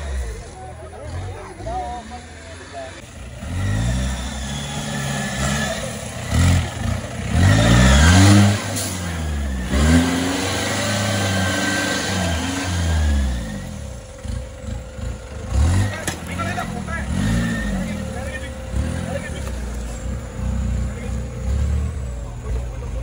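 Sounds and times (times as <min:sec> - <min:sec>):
off-road engine revving: 0:00.0 - 0:23.0.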